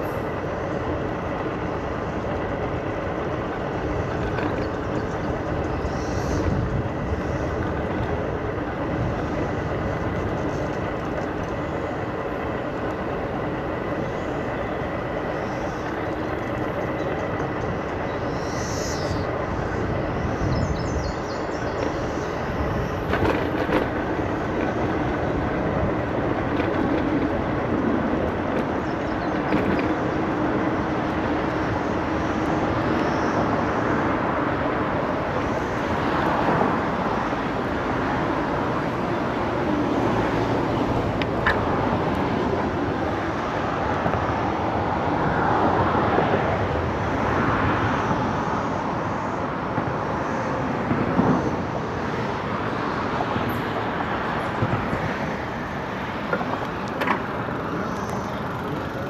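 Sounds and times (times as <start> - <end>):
electric scooter rolling rumble: 0.0 - 59.0
tyres on path: 0.0 - 59.0
wind on microphone: 3.8 - 11.6.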